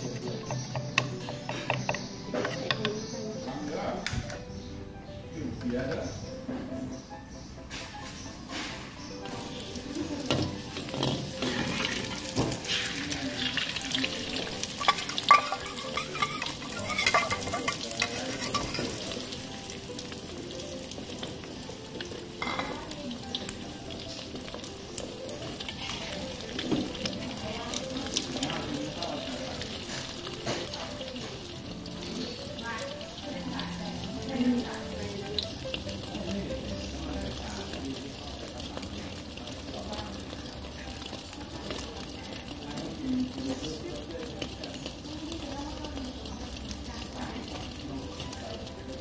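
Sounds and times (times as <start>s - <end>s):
egg sizzling in oil: 7.8s - 49.0s
metal spatula scraping wok: 14.6s - 19.3s.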